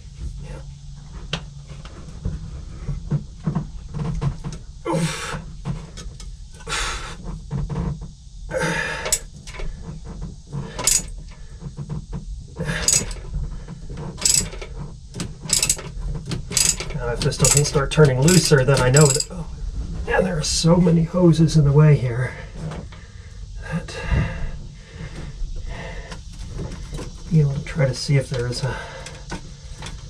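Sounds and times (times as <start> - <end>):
ratchet clicking: 10.7 - 11.1, 12.7 - 13.2, 14.1 - 19.4
tool knocking against metal: 16.5 - 19.3.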